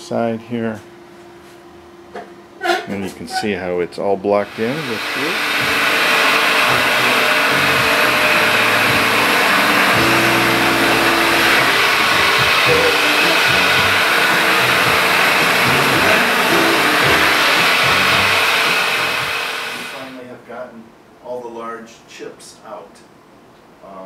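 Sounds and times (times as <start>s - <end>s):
glass-grinding machine whirring: 4.4s - 20.1s.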